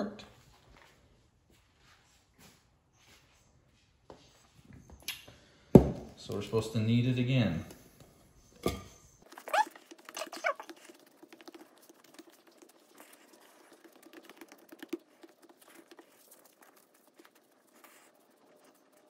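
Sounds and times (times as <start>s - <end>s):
dough being kneaded by hand: 9.2s - 19.0s.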